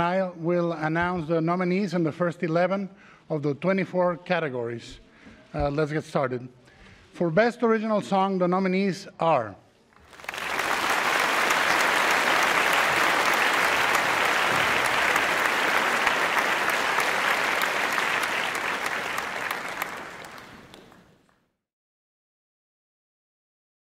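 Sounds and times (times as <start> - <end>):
audience applause: 10.0 - 21.3.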